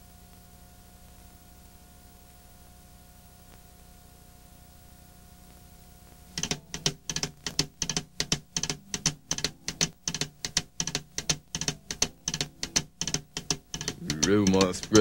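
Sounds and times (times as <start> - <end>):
tape hiss and hum: 0.0 - 15.0
fast steady drum beat: 6.4 - 15.0.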